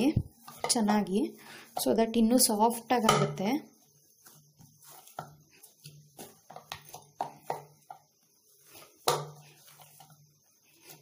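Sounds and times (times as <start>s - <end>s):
dough squishing: 0.0s - 11.0s
dough slapping against bowl: 3.0s - 10.2s.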